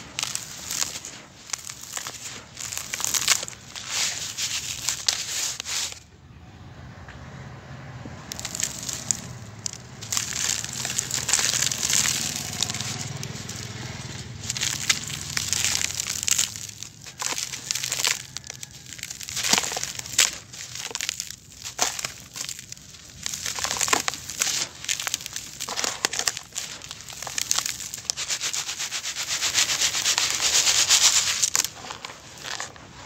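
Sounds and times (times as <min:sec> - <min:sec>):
grains showering onto plastic: 0:00.0 - 0:06.0, 0:08.3 - 0:32.7
sand crumbling and crunching: 0:00.0 - 0:06.0, 0:08.2 - 0:33.0.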